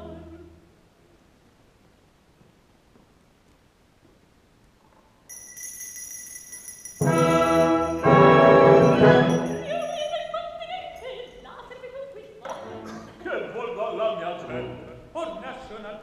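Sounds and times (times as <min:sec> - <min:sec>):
orchestra playing: 0:07.0 - 0:09.8.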